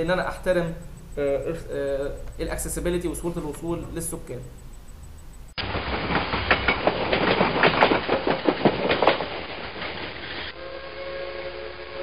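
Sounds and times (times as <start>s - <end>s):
train wheels clattering: 5.5s - 10.6s
train horn chord: 10.5s - 12.0s.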